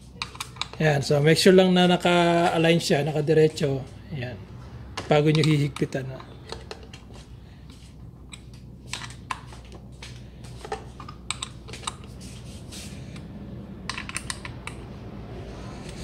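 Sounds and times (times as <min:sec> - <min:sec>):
allen key clicking on bolts: 0:13.9 - 0:14.9.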